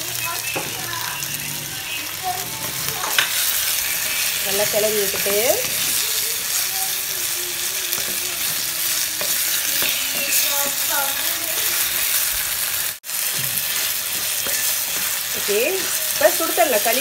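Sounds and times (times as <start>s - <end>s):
vegetables sizzling in oil: 0.0s - 17.0s
wooden spatula scraping a pot: 0.8s - 6.2s.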